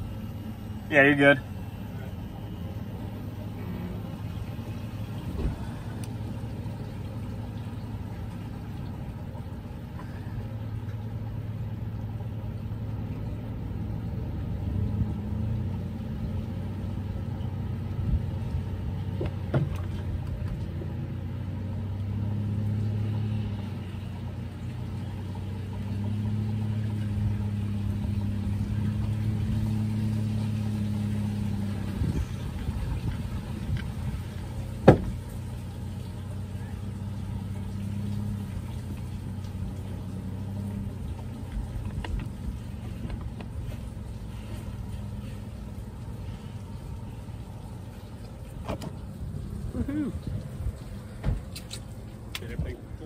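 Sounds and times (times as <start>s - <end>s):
outboard motor running: 0.0s - 53.0s
knocks on boat: 19.2s - 20.6s, 34.8s - 35.2s, 51.2s - 51.5s.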